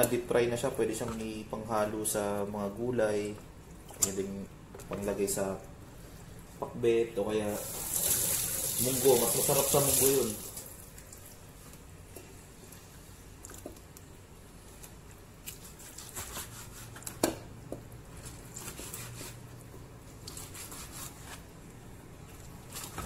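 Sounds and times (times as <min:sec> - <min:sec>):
knife slicing meat: 0:15.5 - 0:17.2, 0:20.2 - 0:21.5.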